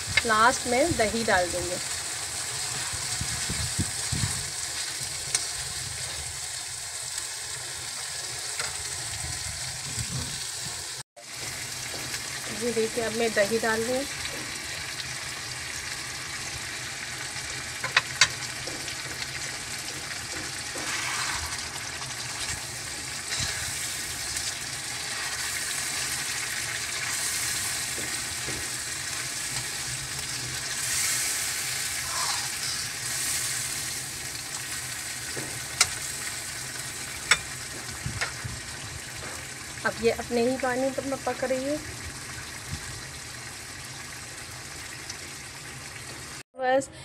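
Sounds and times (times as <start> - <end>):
chicken sizzling in a pan: 0.0 - 46.4
spatula stirring in a pan: 18.2 - 33.9.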